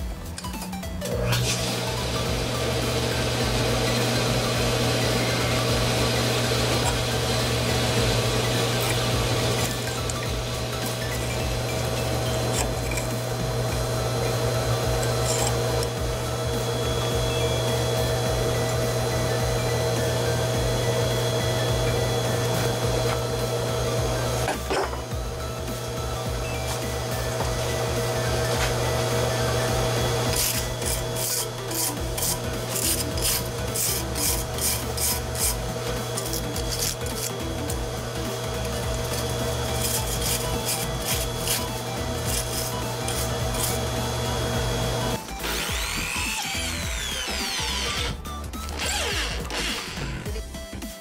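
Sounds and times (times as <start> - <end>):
mechanical hum: 0.0 - 51.0
wire brush scrubbing steel bar: 14.8 - 15.9, 30.2 - 44.9
metal scraping: 30.3 - 37.4.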